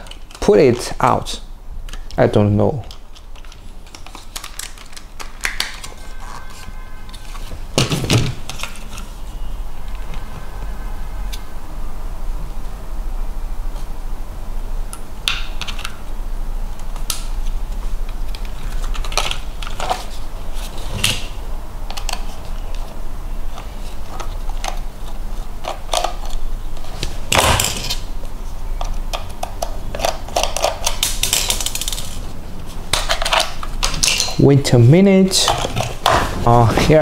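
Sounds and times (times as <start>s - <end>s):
low hum: 8.6s - 15.3s.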